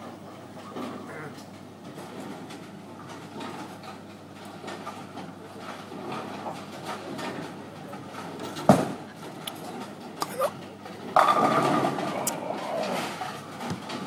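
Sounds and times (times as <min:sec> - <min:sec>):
bowling hall hum: 0:00.0 - 0:14.0
bowling ball rolling: 0:10.9 - 0:14.0.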